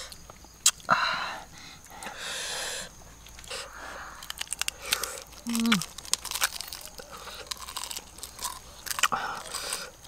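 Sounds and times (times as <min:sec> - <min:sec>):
breathing through mouth: 0:00.9 - 0:05.3
people eating: 0:01.8 - 0:10.0.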